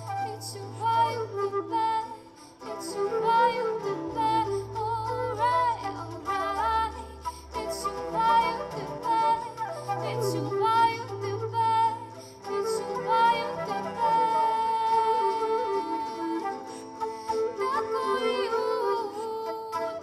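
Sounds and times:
cello: 0:00.0 - 0:20.0
flute: 0:00.0 - 0:20.0
strummed acoustic guitar: 0:00.0 - 0:20.0
woman singing: 0:00.0 - 0:20.0.

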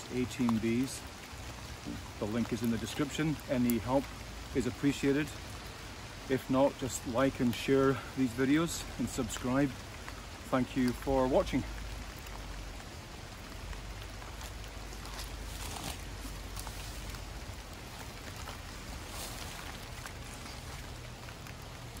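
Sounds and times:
rain pattering on foliage: 0:00.0 - 0:22.0
water drips: 0:00.0 - 0:22.0.

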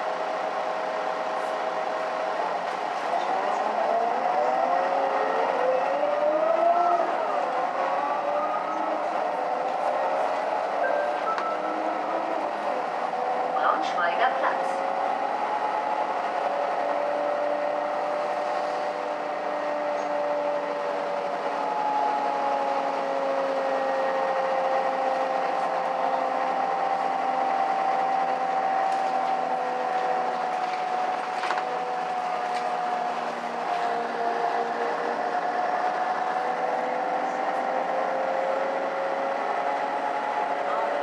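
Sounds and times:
bus drivetrain hum: 0:00.0 - 0:41.0.

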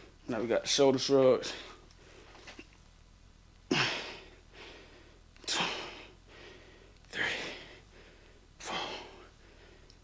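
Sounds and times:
man breathing hard: 0:03.7 - 0:10.0.

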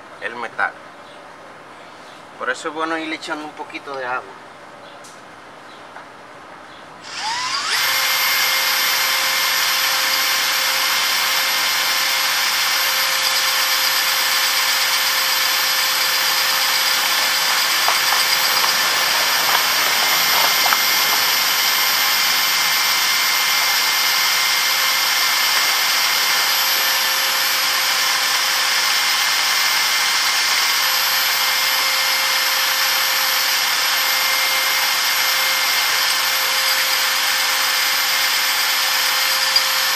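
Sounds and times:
cordless drill whining: 0:07.0 - 0:39.9
metal grinding on disc: 0:11.6 - 0:27.3, 0:34.2 - 0:37.0, 0:39.3 - 0:39.9.

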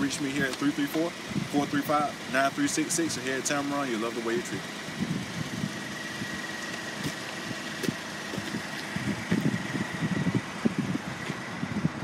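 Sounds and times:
car engine idling: 0:00.0 - 0:12.0
wind rumbling on microphone: 0:01.2 - 0:01.8, 0:04.8 - 0:12.0.

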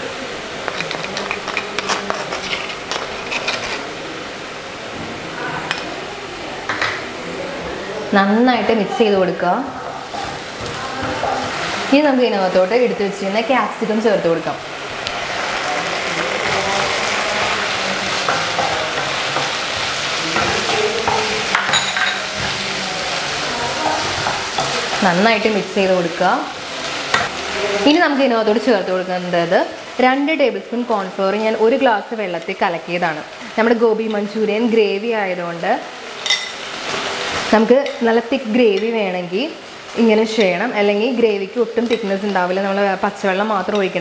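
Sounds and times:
onions sizzling in oil: 0:00.0 - 0:44.0
spatula scraping pan: 0:00.6 - 0:04.0, 0:15.0 - 0:28.0.

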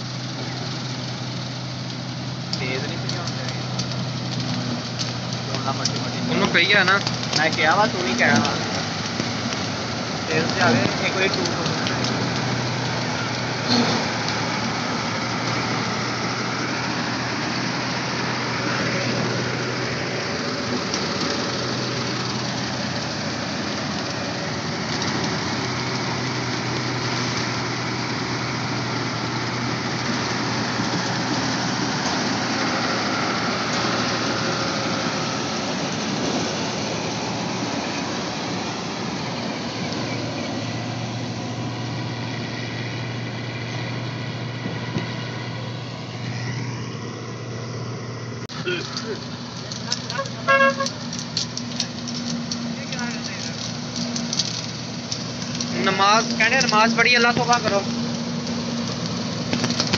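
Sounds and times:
combine harvester engine hum: 0:00.0 - 0:59.9
threshing machinery noise: 0:00.0 - 0:59.9.

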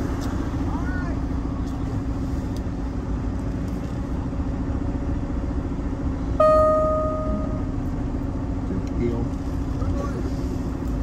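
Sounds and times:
diesel truck engine running: 0:00.0 - 0:11.0
loud ringing tone: 0:06.4 - 0:07.8.

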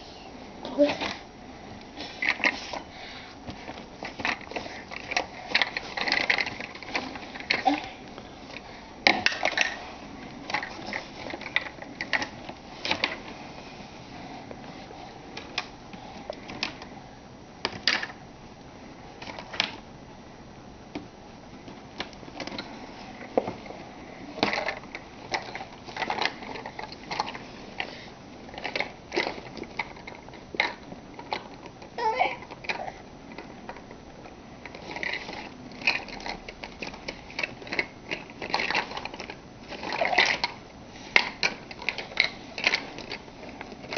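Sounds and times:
plastic toys clattering: 0:02.0 - 0:02.8, 0:03.5 - 0:13.3, 0:17.7 - 0:18.2, 0:22.0 - 0:34.0, 0:34.6 - 0:43.9.

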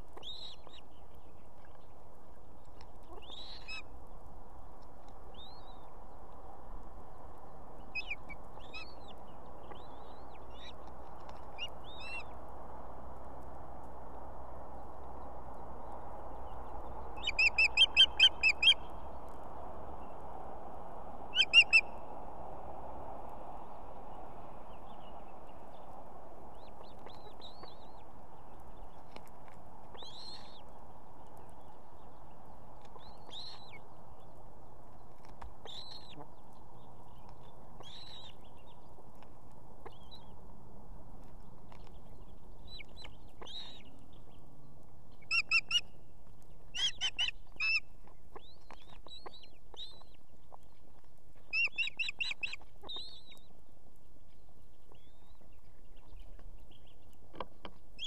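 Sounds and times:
bird chick chirping: 0:07.9 - 0:10.8, 0:16.7 - 0:18.8, 0:21.3 - 0:21.9, 0:35.2 - 0:36.6, 0:41.2 - 0:44.0, 0:45.2 - 0:45.9, 0:46.6 - 0:53.5
osprey chirping calls: 0:17.2 - 0:18.8, 0:21.3 - 0:22.0, 0:45.2 - 0:45.9, 0:46.7 - 0:50.1, 0:51.5 - 0:53.5.

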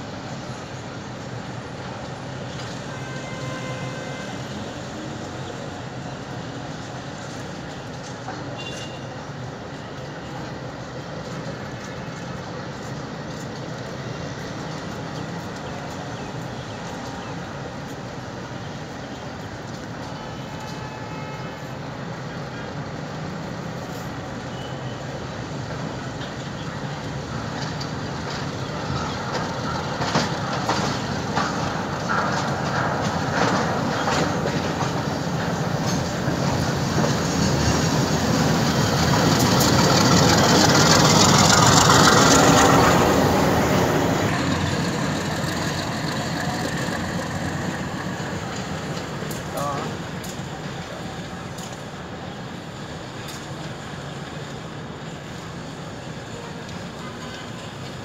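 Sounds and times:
wheels clicking on track: 0:22.1 - 0:58.0
locomotive engine passing: 0:25.3 - 0:58.0.

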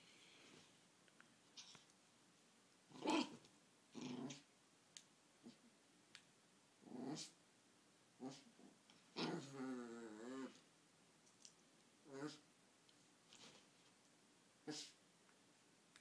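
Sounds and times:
small dog play growling: 0:02.9 - 0:04.5, 0:06.8 - 0:07.4, 0:08.2 - 0:10.7, 0:12.0 - 0:12.4.

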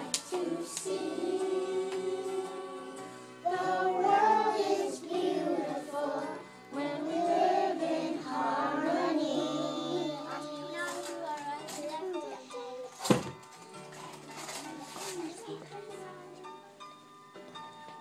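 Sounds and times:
children singing together: 0:00.0 - 0:11.3
backing music: 0:00.0 - 0:12.2.

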